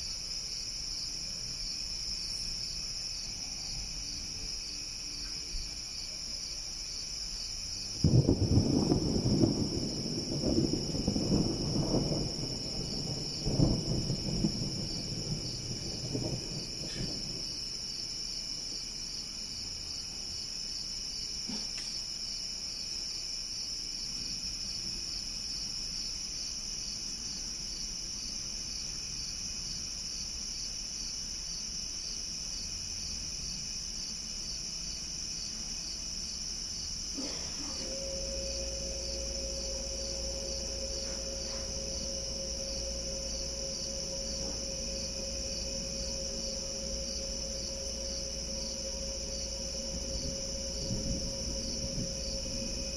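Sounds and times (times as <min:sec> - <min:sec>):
night insects chirping: 0:00.0 - 0:52.9
distant thunder rumbling: 0:08.0 - 0:17.8, 0:36.9 - 0:52.9
steady low hum: 0:35.5 - 0:52.9.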